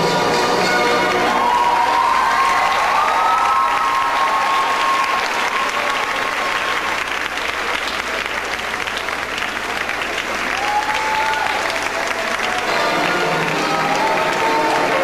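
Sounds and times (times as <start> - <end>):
audience applauding: 0.9 - 15.0.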